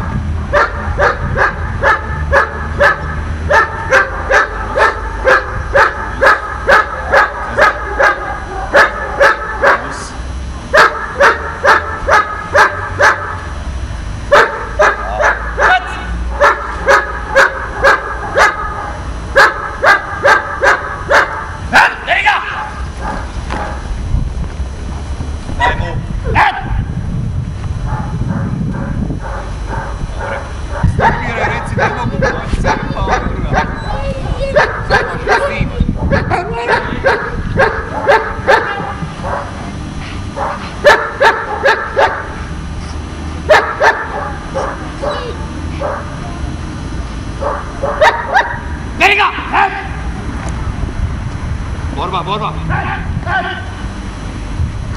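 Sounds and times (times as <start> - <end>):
dog barking rapidly: 0.5 - 10.0, 10.7 - 13.4, 14.3 - 23.9, 25.6 - 26.9, 27.8 - 39.6, 40.3 - 42.4, 43.4 - 46.2, 47.4 - 48.8.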